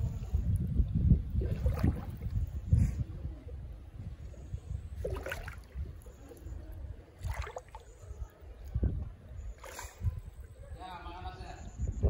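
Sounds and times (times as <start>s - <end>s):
feet splashing through stream water: 1.3s - 2.4s, 5.0s - 6.4s, 7.0s - 8.1s, 9.6s - 10.3s.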